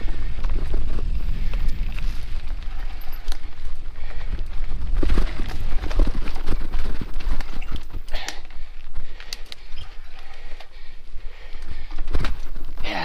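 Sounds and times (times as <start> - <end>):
wind on microphone: 0.0 - 8.2
bike rattling over bumpy trail: 0.0 - 13.0.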